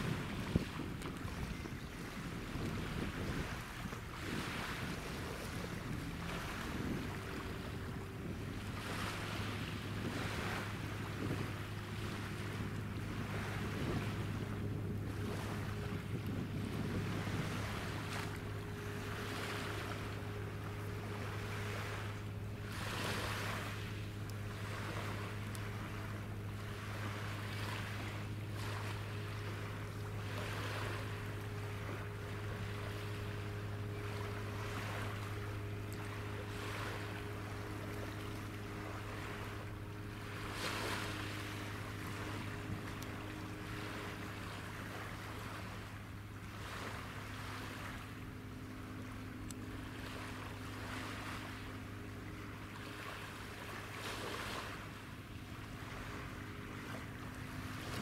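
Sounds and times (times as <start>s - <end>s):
wind on microphone: 0.0s - 46.0s
ship engines droning: 0.0s - 58.0s
small waves washing: 0.0s - 58.0s.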